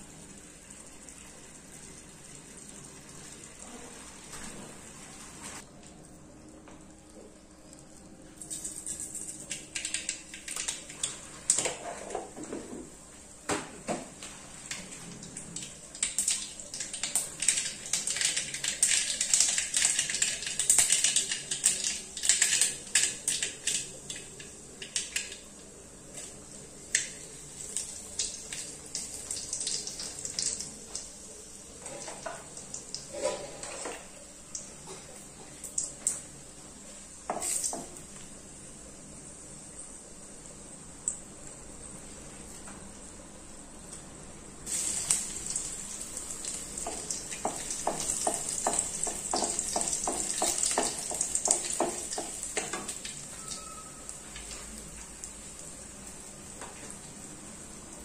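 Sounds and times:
mustard seeds popping in oil: 46.5s - 53.8s.

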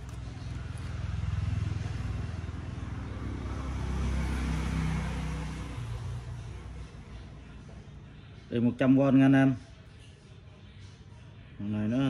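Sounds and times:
vehicle engine humming: 0.0s - 8.2s.

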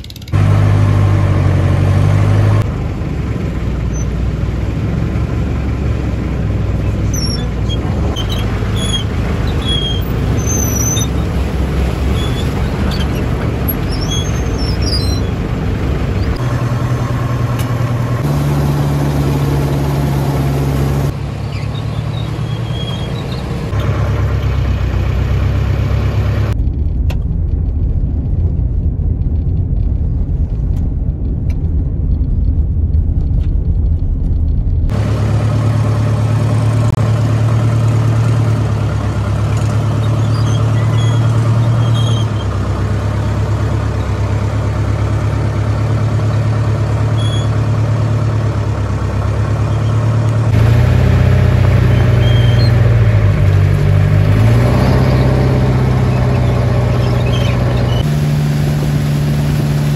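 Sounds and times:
vehicle engine humming: 0.0s - 59.9s.

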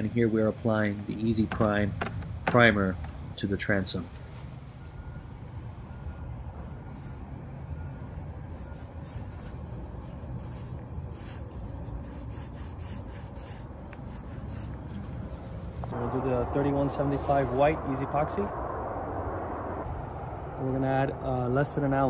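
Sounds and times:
low steady rumble: 4.1s - 22.0s
paint roller rubbing: 6.4s - 16.0s.

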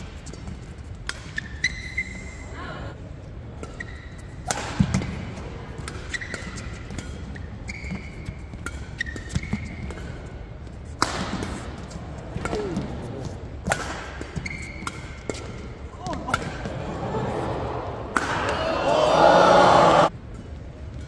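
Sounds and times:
rackets striking shuttlecock: 0.3s - 1.7s, 3.6s - 16.7s, 18.1s - 18.6s
shoes squeaking on floor: 1.4s - 2.5s, 6.1s - 6.8s, 7.6s - 9.9s, 14.4s - 15.1s.

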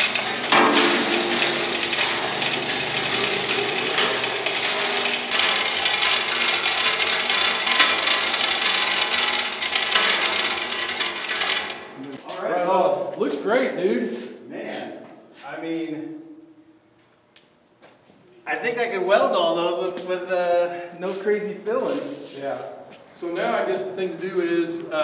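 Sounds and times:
chain hoist rattling: 0.0s - 11.9s.

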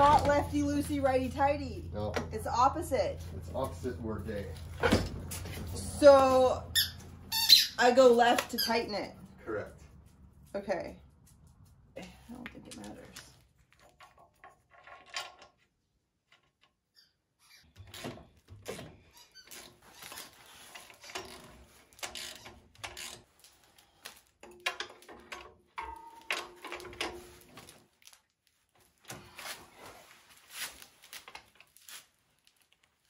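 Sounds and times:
metal tools clinking: 24.4s - 27.4s.

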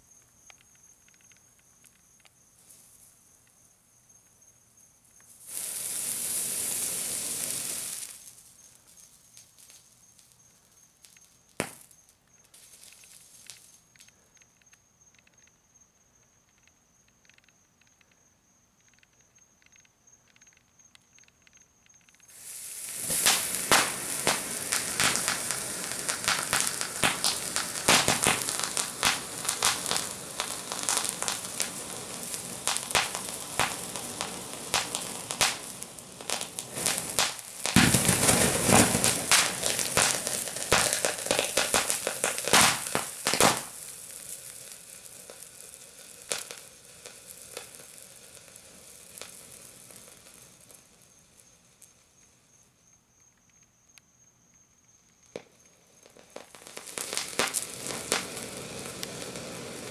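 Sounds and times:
firework fountain hissing and crackling: 2.5s - 3.2s, 5.2s - 14.2s, 22.2s - 52.8s, 55.2s - 59.9s.

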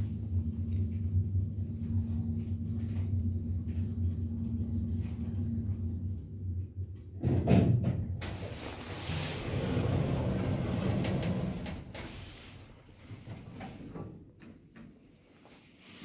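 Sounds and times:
faint steady whine: 0.0s - 9.0s
lift stopping rumble and bump: 0.0s - 13.9s.

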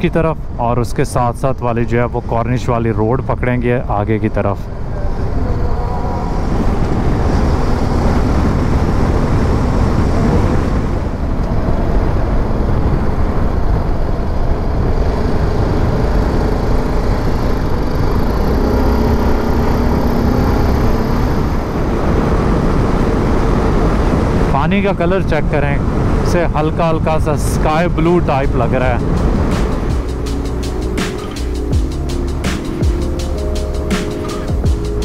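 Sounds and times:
wind and road noise rushing: 0.0s - 35.0s
motorcycle engine running: 12.3s - 23.9s, 28.9s - 35.0s.

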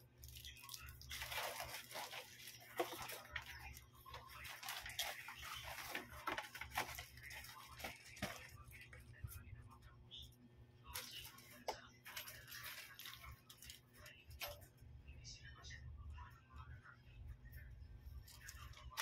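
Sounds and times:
plastic tearing: 0.7s - 8.9s
plastic bag rustling: 0.8s - 9.0s, 11.0s - 14.2s.

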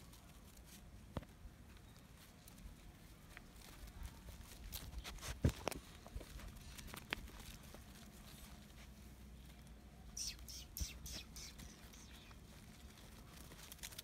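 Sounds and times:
puppy paws pattering on stony dirt: 0.0s - 9.8s.

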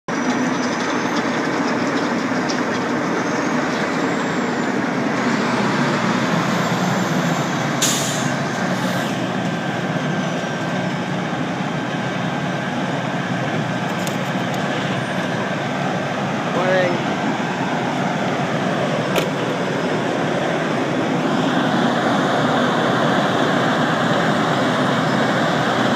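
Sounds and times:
short sharp hiss: 7.8s - 9.2s.

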